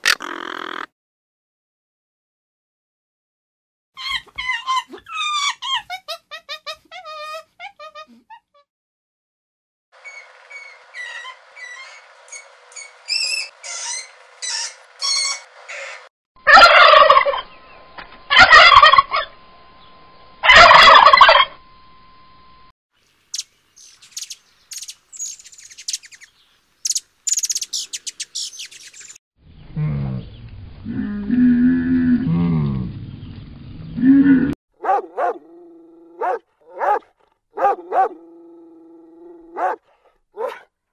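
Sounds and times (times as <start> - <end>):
monkey high chirps: 10.0 - 16.0, 23.4 - 29.1
turkey gobbling: 13.6 - 17.6, 18.3 - 19.3, 20.4 - 21.6
hummingbird twittering: 23.3 - 29.2.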